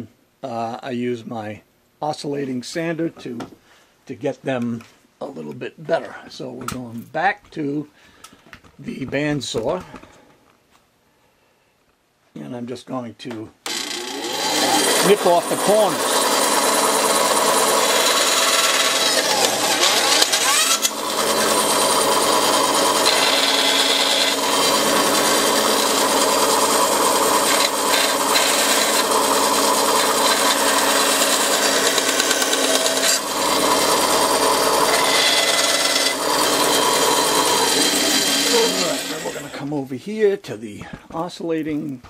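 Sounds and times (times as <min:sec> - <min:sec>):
bandsaw cutting wood: 0:13.6 - 0:39.7.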